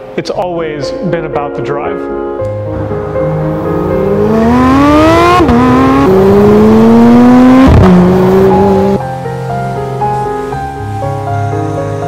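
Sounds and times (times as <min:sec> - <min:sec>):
car engine accelerating hard: 0:02.7 - 0:09.0.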